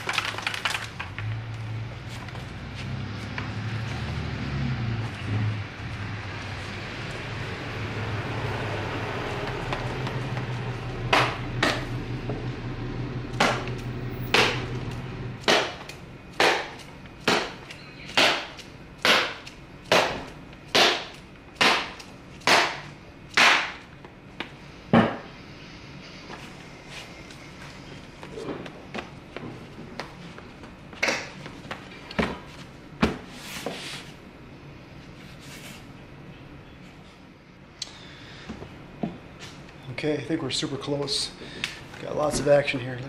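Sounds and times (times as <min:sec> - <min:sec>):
low steady hum: 0:00.4 - 0:43.0
sharp slaps on leather glove: 0:15.4 - 0:23.8.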